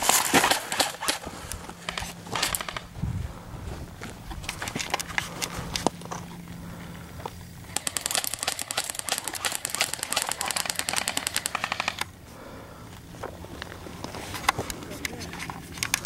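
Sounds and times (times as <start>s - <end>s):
airsoft rifle full-auto burst: 0.0s - 2.9s, 7.7s - 12.1s.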